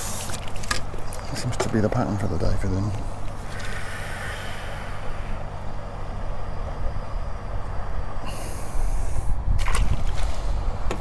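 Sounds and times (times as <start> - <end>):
fish splashing into net: 9.6 - 10.4.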